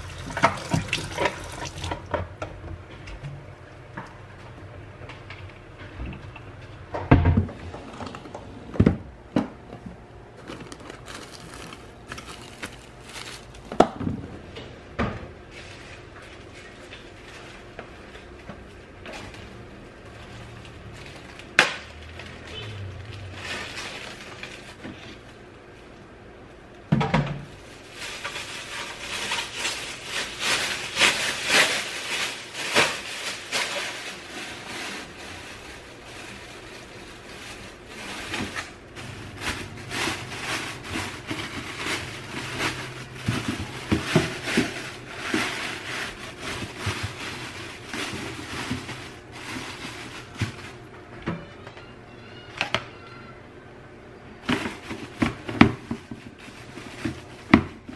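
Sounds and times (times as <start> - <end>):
plastic bag rustling: 0.0 - 2.1, 10.3 - 14.0, 15.4 - 26.1, 27.4 - 50.9, 54.4 - 57.9.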